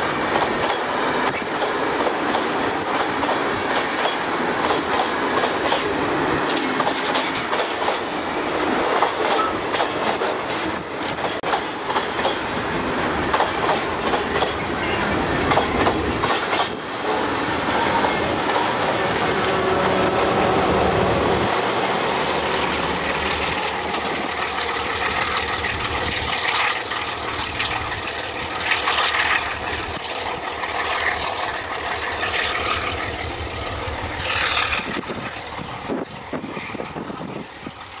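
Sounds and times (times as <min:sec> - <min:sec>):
diesel locomotive engine running: 0:11.4 - 0:38.0.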